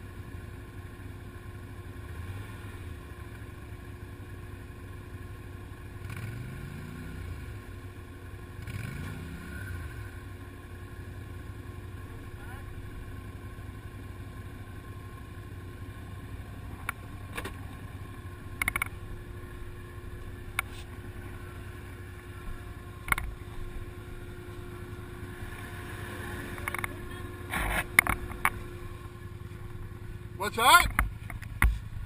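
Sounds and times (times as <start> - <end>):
atv engine idling: 0.0 - 32.0.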